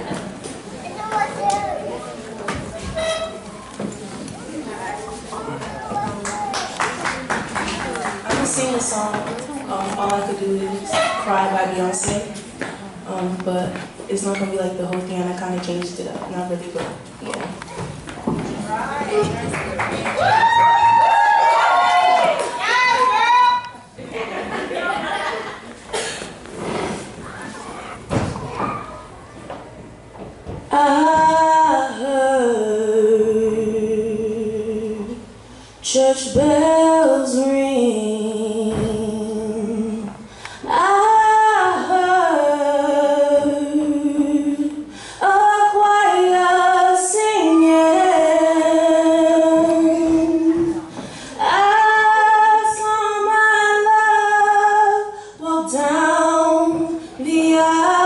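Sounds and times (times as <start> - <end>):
woman singing into a microphone: 30.7 - 58.0
singer breathing: 40.2 - 40.7, 44.9 - 45.2, 50.9 - 51.4.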